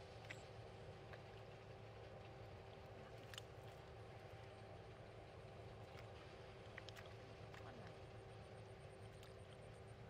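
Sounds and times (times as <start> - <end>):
low background hum: 0.0 - 10.0
faint soft clicks: 3.2 - 3.5, 6.7 - 8.0.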